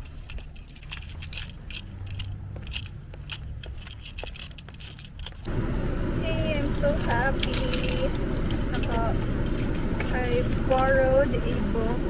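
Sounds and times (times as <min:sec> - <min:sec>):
car cabin rumble: 0:05.5 - 0:12.0.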